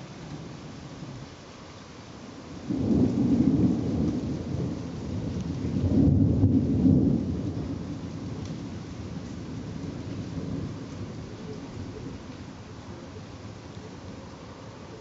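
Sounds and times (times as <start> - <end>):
rain falling: 0.0 - 15.0
thunder rumbling: 2.6 - 14.1.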